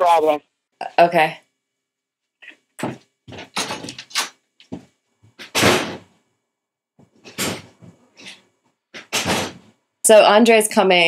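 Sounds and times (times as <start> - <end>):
door clunking and rustling: 2.8 - 6.1, 7.1 - 8.4, 9.0 - 9.7.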